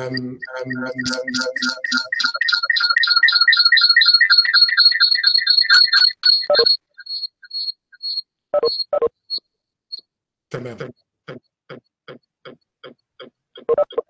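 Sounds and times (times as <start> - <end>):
rapid high-pitched electronic beeping: 0.0 - 9.1.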